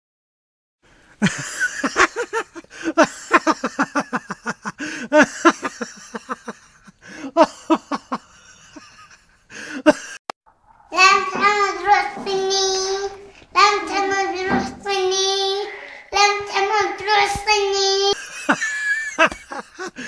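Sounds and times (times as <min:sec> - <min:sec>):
laughter in short pulses: 0:18.2 - 0:20.0.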